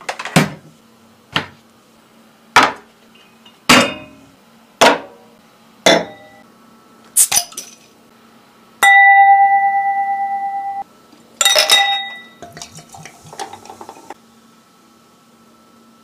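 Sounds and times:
glass clink: 0:05.9 - 0:06.4, 0:08.8 - 0:10.8, 0:11.4 - 0:12.5
glass struck ringing: 0:08.8 - 0:10.8, 0:11.4 - 0:12.4
beer pouring and fizzing: 0:12.4 - 0:14.2.

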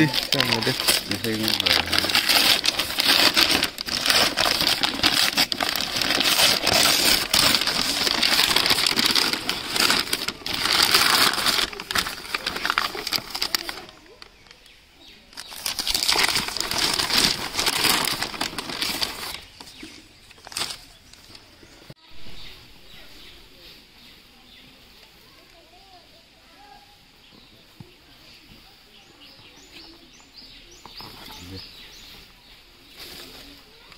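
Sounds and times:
stiff paper rustling and crackling: 0:00.0 - 0:21.6.

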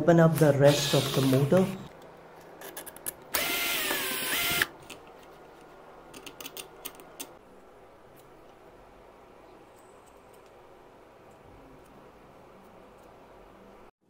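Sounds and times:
drill motor whining: 0:03.4 - 0:04.7.

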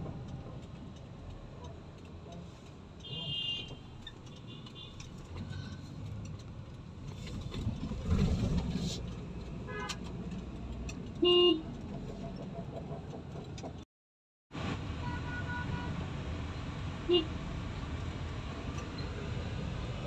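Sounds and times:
car cabin road and engine rumble: 0:00.0 - 0:13.9, 0:14.6 - 0:20.0
car horn honk: 0:03.0 - 0:03.8, 0:15.0 - 0:15.9.

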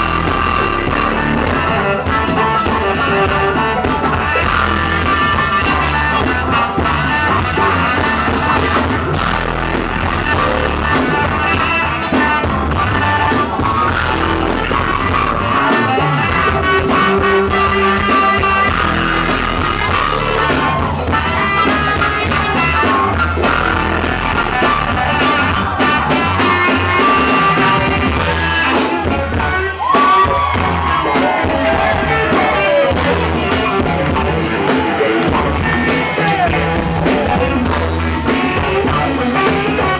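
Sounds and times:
baritone saxophone: 0:00.0 - 0:28.8
live funk band playing: 0:00.0 - 0:39.9.

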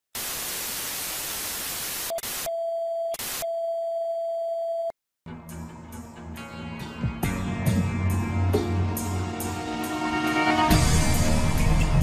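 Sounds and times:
television static hiss: 0:00.2 - 0:02.5
music with guitar and drums: 0:05.3 - 0:12.0.

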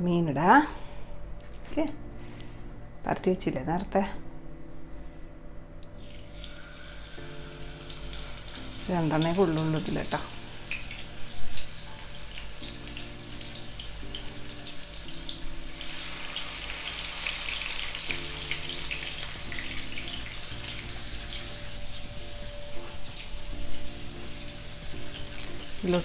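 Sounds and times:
fish sizzling in hot oil: 0:06.0 - 0:26.0.

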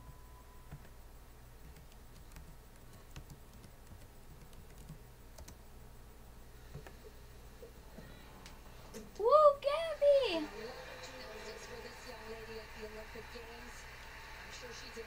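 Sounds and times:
steady low hum: 0:00.0 - 0:09.6.

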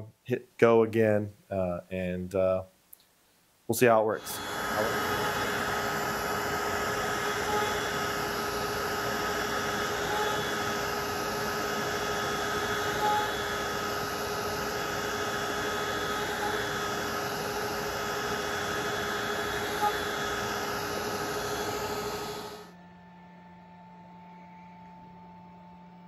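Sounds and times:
router spindle whine: 0:04.1 - 0:22.7.

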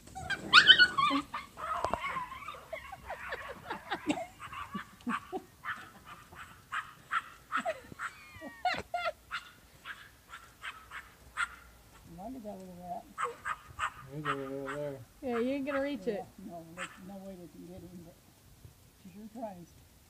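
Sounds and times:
puppies yipping and barking: 0:00.0 - 0:11.7, 0:13.2 - 0:16.0
puppy yelping: 0:00.1 - 0:11.7, 0:13.2 - 0:16.1, 0:16.8 - 0:17.1.

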